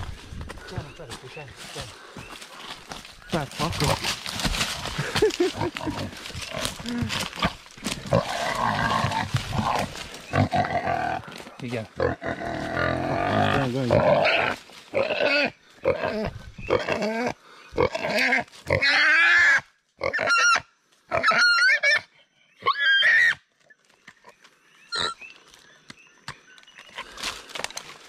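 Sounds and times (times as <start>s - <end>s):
pig squealing and grunting: 5.6s - 11.3s, 12.0s - 23.4s, 24.9s - 25.2s.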